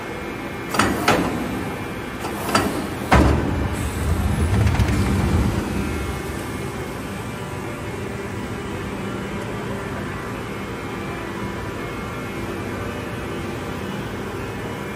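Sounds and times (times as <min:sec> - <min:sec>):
slitting machine humming: 0:00.8 - 0:09.5
low rumble: 0:03.2 - 0:08.2.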